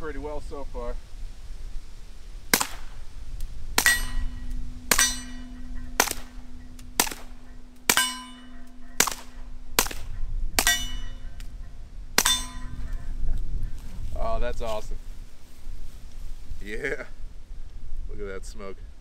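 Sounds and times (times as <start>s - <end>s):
suppressed pistol shots: 2.5s - 3.0s, 4.9s - 11.4s.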